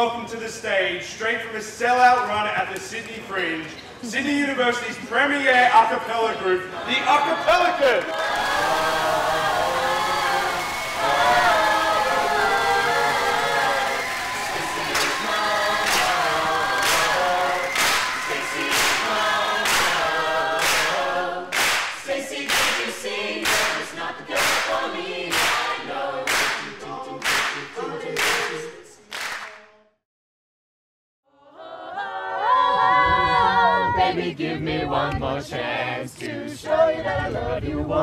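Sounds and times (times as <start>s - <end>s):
a cappella choir singing: 6.6s - 29.9s, 31.3s - 38.0s
clap beat: 7.9s - 29.9s.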